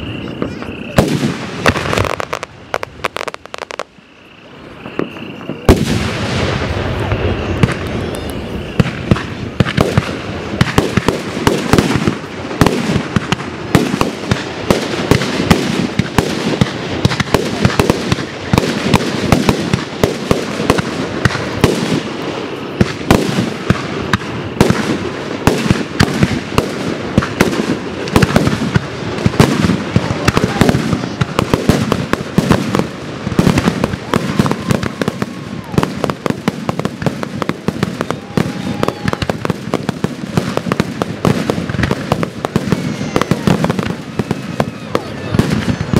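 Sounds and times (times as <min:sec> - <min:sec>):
fireworks booming and crackling: 0:00.0 - 0:45.9.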